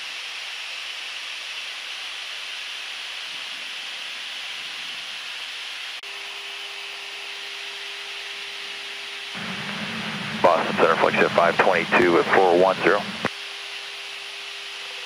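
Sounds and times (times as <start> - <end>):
faint steady hum: 9.4 - 13.3
rushing air in jet cockpit: 9.4 - 13.3.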